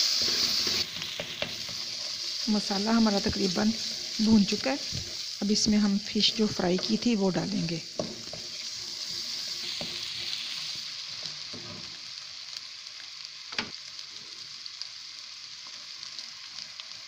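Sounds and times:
spatula scraping a pan: 0.0 - 5.4, 8.0 - 12.1
masala sizzling in hot oil: 0.0 - 17.0.

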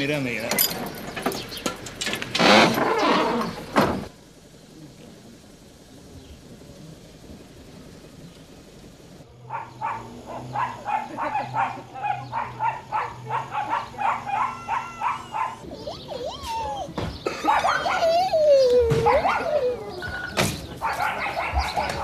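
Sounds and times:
dog barking rapidly: 9.4 - 18.3, 18.9 - 22.0.

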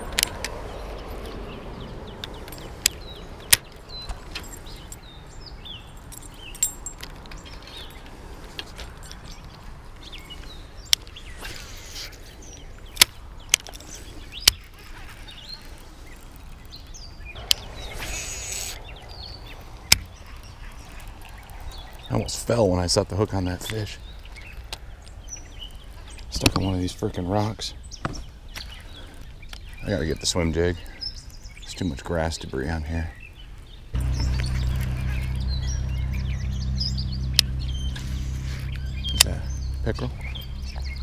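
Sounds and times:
songbirds chirping: 0.0 - 41.0
fishing rod swishing cast: 17.4 - 19.0.

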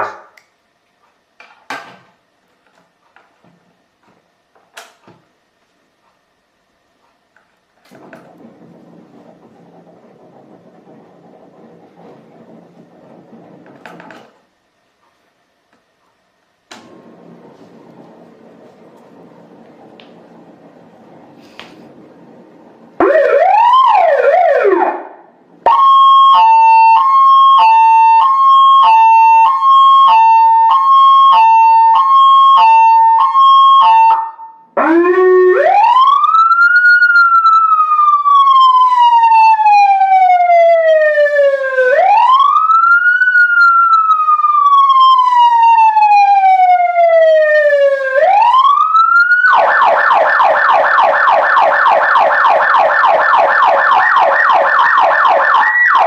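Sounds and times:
electronic siren changing tones: 23.0 - 56.0.

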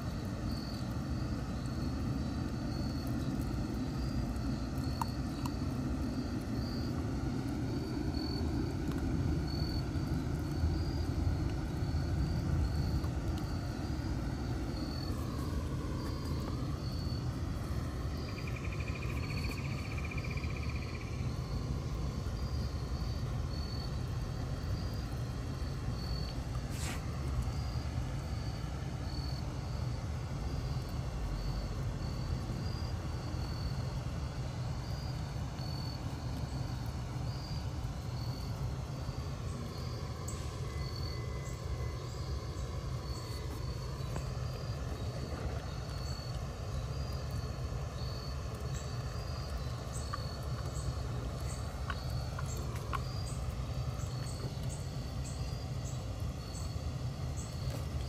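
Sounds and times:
steady low rumble: 0.0 - 32.6
insects chirping: 0.0 - 58.0.

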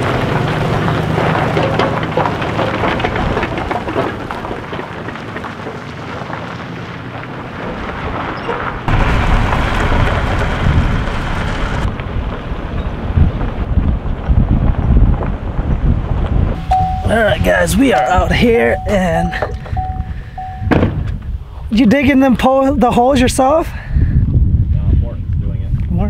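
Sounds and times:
pickup truck driving: 0.0 - 21.3
wind buffeting microphone: 0.0 - 26.0
wind rushing: 8.8 - 22.2, 23.1 - 25.9.

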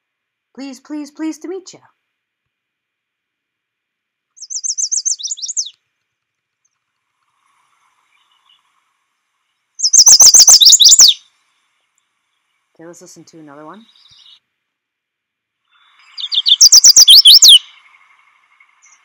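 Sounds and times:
warbler song: 4.3 - 5.8, 6.6 - 14.5, 15.6 - 19.0.

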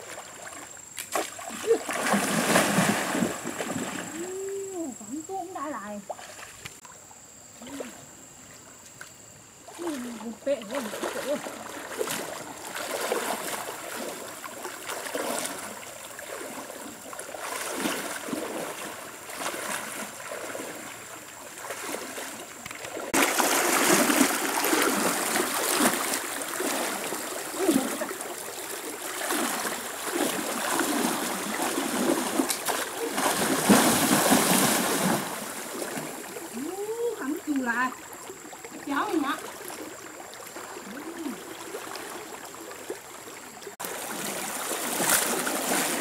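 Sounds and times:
stream running: 0.0 - 46.0
wading splashes in stream: 0.0 - 46.0.

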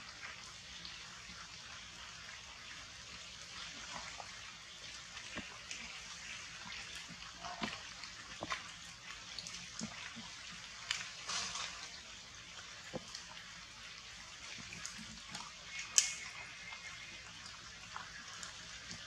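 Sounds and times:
rain on foliage: 4.9 - 19.0.

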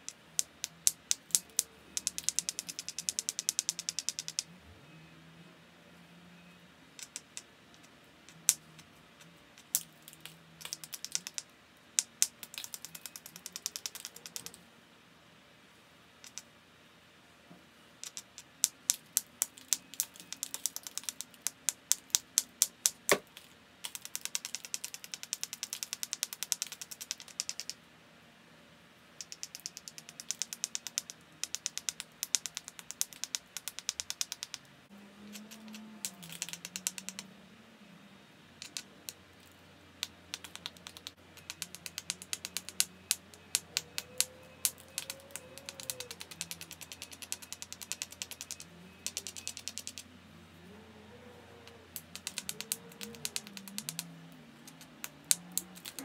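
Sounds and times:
knapping tool clicking on flint: 0.0 - 4.5, 7.0 - 8.9, 9.6 - 14.6, 16.2 - 16.5, 18.0 - 27.8, 29.2 - 34.7, 35.3 - 37.2, 38.6 - 50.0, 51.6 - 56.0.

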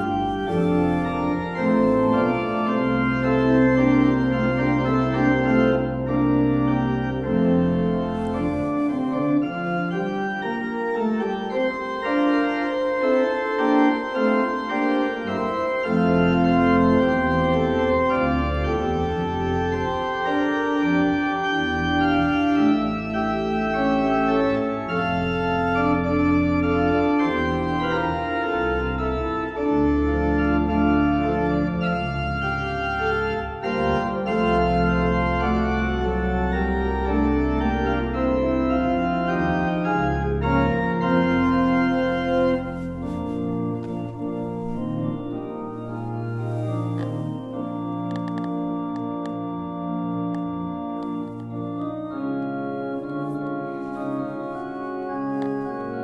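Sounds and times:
deep bass organ notes: 0.0 - 12.3
organ playing held chords: 0.0 - 56.0.

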